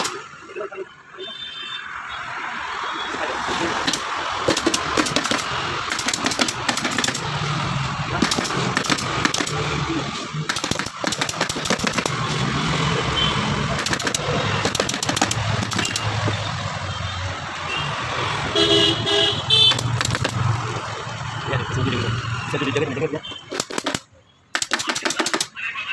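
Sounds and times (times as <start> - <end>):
pneumatic staple gun firing: 0.0 - 0.2, 3.8 - 7.6, 8.2 - 9.8, 10.4 - 12.3, 13.8 - 16.3, 19.7 - 20.5, 23.5 - 25.5.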